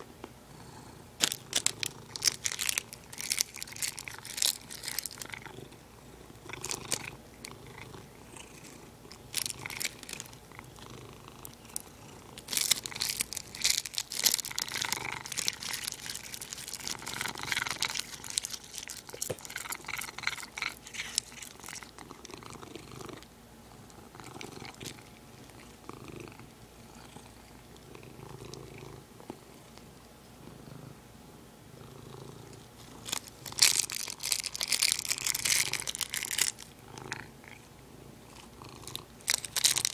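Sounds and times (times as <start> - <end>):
cat purring: 0.0 - 39.7
plastic bag crinkling: 1.2 - 5.5, 6.5 - 7.6, 9.1 - 10.6, 12.4 - 22.0, 32.8 - 36.8, 38.9 - 39.9.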